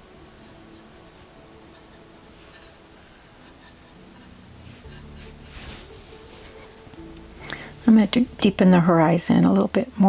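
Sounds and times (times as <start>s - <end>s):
paintbrush scrubbing on canvas: 3.4s - 6.8s.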